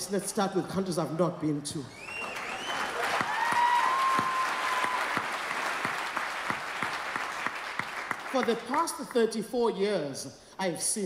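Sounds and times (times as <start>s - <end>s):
audience clapping: 2.0s - 9.2s.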